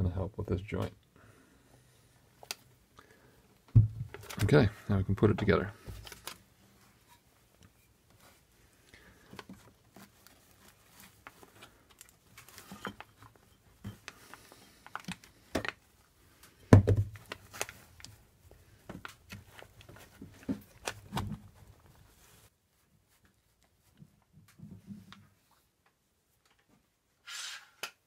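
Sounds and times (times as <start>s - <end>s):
dull thump: 3.7s - 4.2s.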